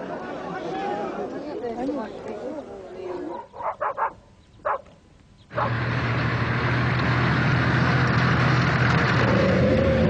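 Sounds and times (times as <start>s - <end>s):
engine droning: 5.5s - 10.0s.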